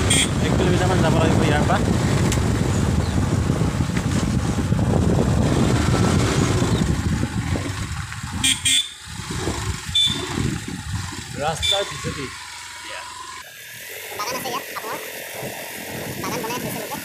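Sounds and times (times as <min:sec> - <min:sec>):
short horn toots: 0:00.0 - 0:00.4, 0:08.4 - 0:09.0, 0:09.9 - 0:10.4
wind noise: 0:00.0 - 0:11.8, 0:15.4 - 0:17.0
vehicle engine rumble: 0:00.0 - 0:17.0.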